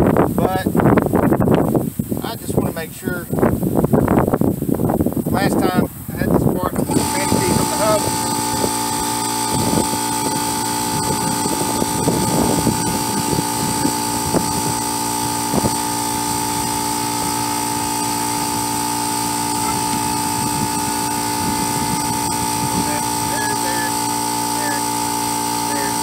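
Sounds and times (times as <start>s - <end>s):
steady machine hum: 6.3s - 26.0s.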